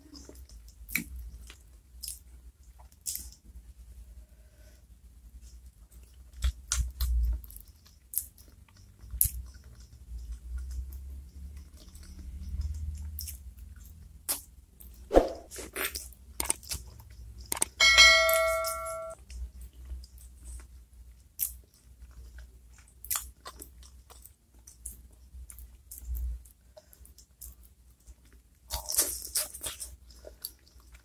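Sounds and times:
chewing with mouth smacks: 5.5s - 17.7s, 19.2s - 31.0s.

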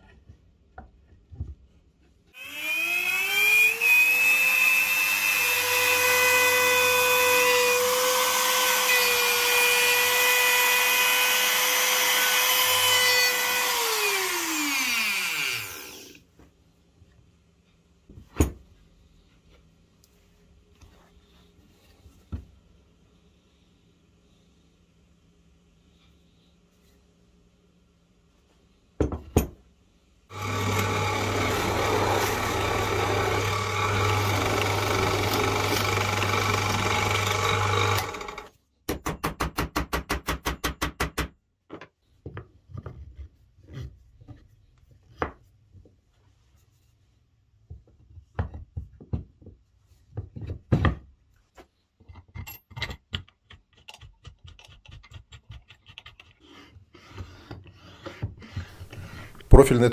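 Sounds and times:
power tool motor humming: 2.4s - 16.2s, 30.3s - 38.5s.

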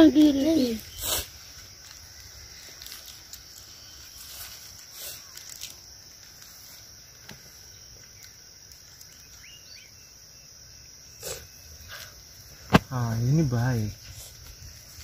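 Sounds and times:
faint rustles and clicks: 0.0s - 9.6s
insects chirring: 0.0s - 15.0s
loud rustle or thump: 12.6s - 13.1s.

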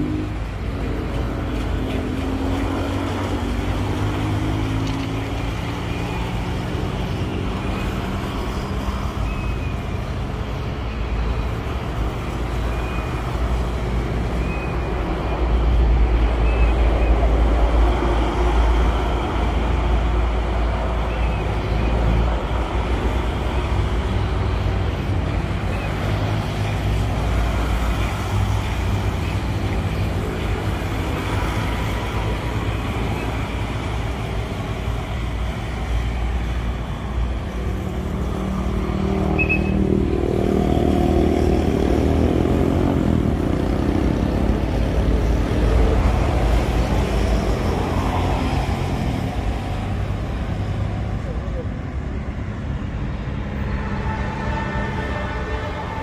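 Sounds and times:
road traffic: 0.0s - 56.0s.

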